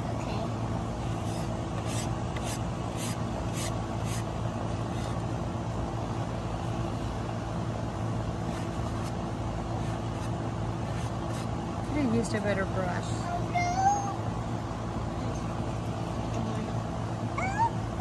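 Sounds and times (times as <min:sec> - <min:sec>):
low mechanical hum: 0:00.0 - 0:18.0
sponge brush scrubbing wood: 0:01.2 - 0:04.3.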